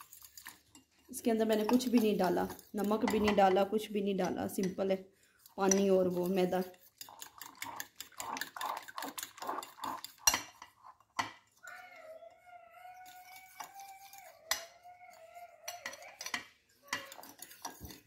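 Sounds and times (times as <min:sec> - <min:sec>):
fork clinking against glass bowl: 0:15.6 - 0:18.0.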